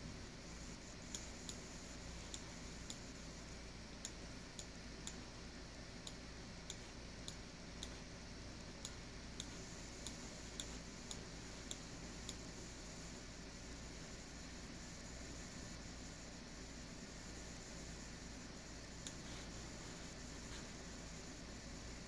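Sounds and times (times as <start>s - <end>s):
steady low hum: 0.0s - 22.0s
faint sharp clicks: 8.8s - 12.4s.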